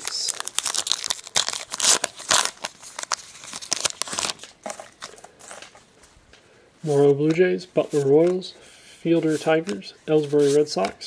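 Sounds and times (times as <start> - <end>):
wrapper tearing and crinkling: 0.0 - 5.1.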